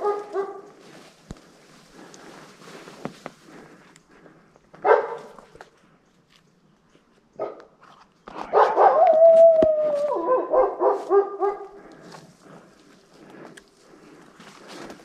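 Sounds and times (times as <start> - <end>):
wolf yips and barks: 0.0 - 0.7, 4.8 - 5.4, 8.5 - 11.7
wolf howling: 8.5 - 11.7.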